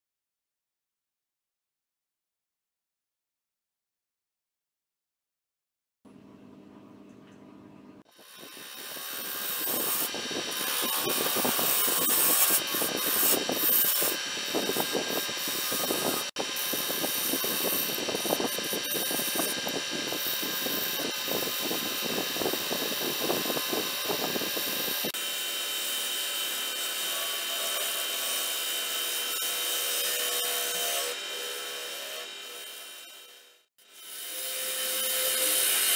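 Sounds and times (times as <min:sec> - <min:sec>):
gouge scraping spinning wood: 0:08.2 - 0:25.1
lathe motor hum: 0:08.2 - 0:25.1.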